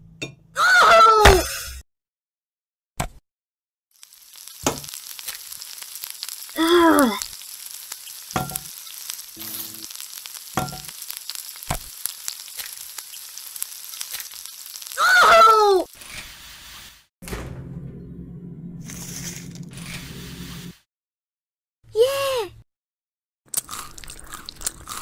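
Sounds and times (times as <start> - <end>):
sizzling hiss: 4.0 - 17.1.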